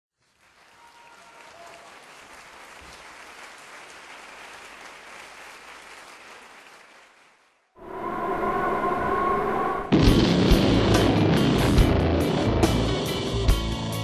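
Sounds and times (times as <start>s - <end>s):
audience applauding: 0.2s - 7.7s.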